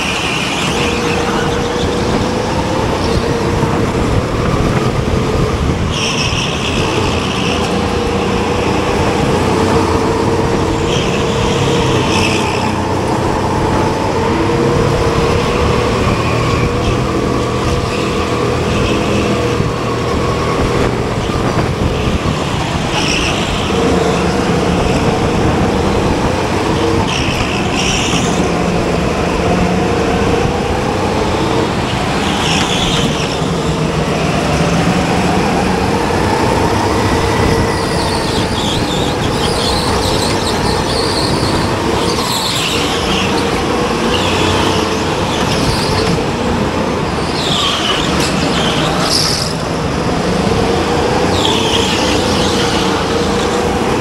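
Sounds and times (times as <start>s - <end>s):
racing kart engine: 0.0s - 54.0s.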